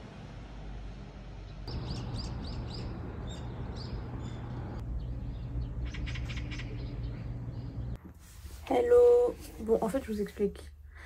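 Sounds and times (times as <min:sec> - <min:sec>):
low steady hum: 0:00.0 - 0:11.0
small birds chirping: 0:01.6 - 0:08.0.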